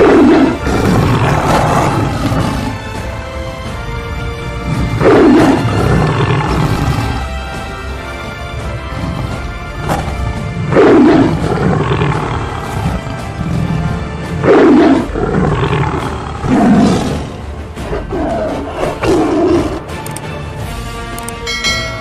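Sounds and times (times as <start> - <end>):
big cat roars: 0.0 - 3.1, 4.4 - 7.4, 8.6 - 19.9
background music: 0.0 - 22.0.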